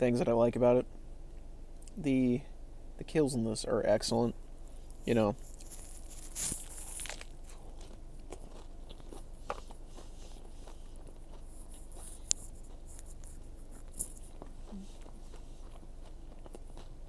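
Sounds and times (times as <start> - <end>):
quiet chewing with mouth clicks: 4.7 - 17.0
crunchy bite into burger: 5.4 - 17.0.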